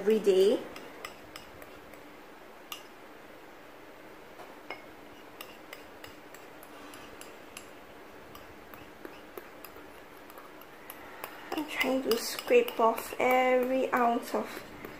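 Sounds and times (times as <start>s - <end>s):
ceramic bowl clinking on ramekin: 8.3s - 14.1s.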